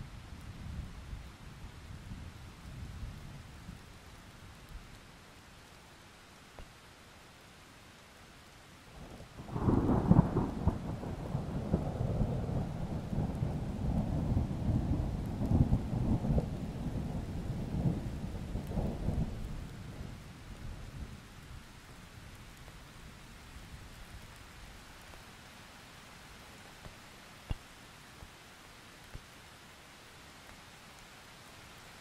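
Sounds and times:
rain hiss: 0.0s - 32.0s
rolling thunder: 9.4s - 20.2s.

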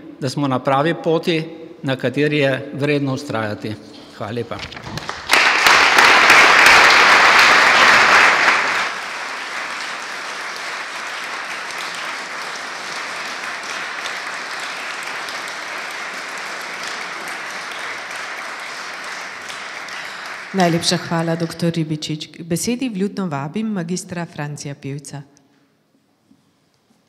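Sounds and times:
audience applauding: 4.7s - 21.6s.

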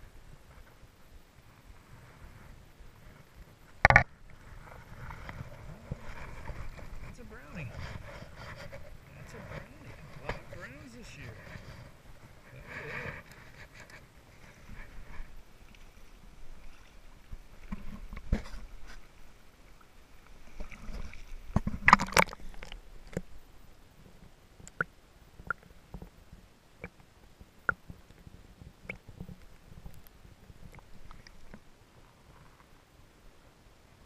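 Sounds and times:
water splashing: 14.4s - 23.3s
underwater water gurgling: 19.3s - 23.4s.

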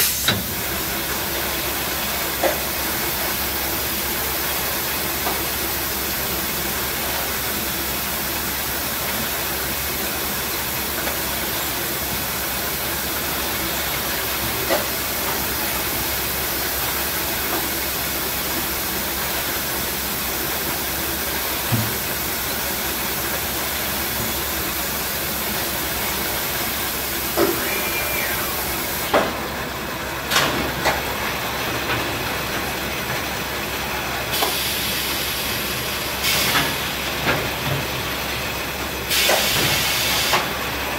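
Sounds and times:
conveyor machine hiss and rumble: 0.0s - 40.9s
short machine whine: 27.3s - 29.2s.

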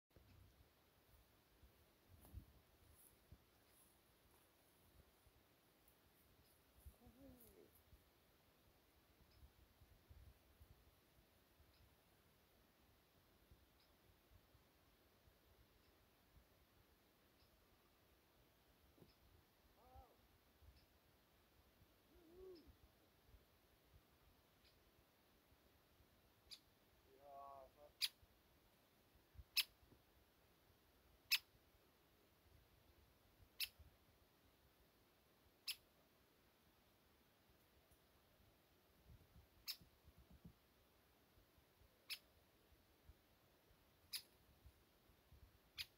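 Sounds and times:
small bird chirps: 6.2s - 7.8s, 17.2s - 17.7s, 22.0s - 22.8s, 24.5s - 24.9s, 26.4s - 28.2s, 29.4s - 29.8s, 31.2s - 31.6s, 33.5s - 33.8s, 35.6s - 35.9s, 39.5s - 40.0s, 42.0s - 42.4s, 44.0s - 44.4s, 45.6s - 45.9s.

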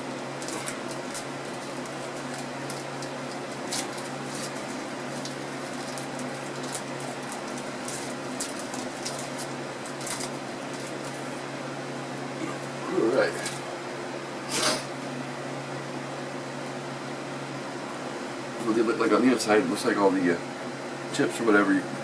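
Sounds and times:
steady background hum: 0.0s - 22.0s
wrapper crinkling: 0.4s - 11.3s.

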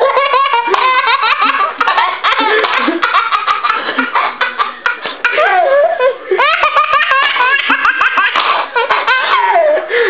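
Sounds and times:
baby laughing: 0.0s - 10.0s.

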